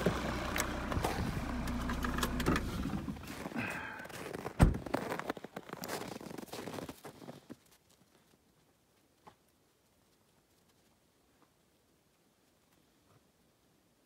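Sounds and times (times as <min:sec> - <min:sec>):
vehicle engine idling: 0:00.0 - 0:04.0.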